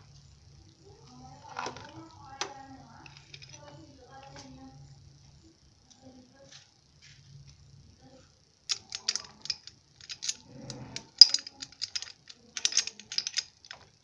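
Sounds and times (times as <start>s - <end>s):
metallic clicks of hand tools: 8.7s - 13.8s.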